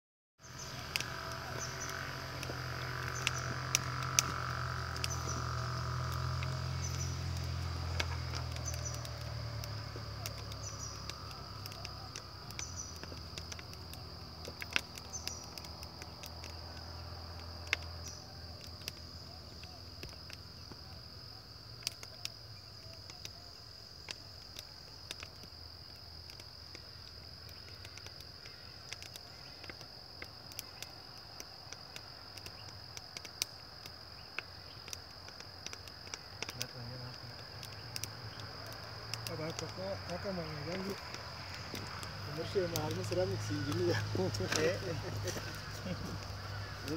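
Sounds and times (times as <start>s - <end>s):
crickets trilling: 0.4s - 46.9s
wood fire crackling and popping: 0.4s - 46.9s.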